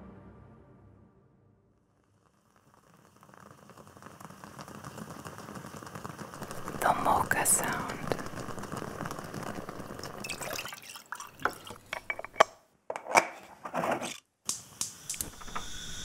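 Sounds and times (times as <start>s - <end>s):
water pouring: 2.3s - 12.5s.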